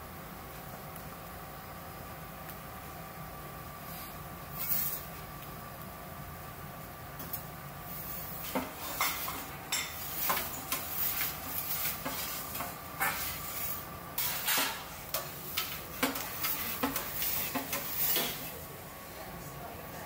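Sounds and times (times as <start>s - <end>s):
steady hum: 0.0s - 20.0s
metal peel scraping oven floor: 4.5s - 5.2s, 7.9s - 18.6s.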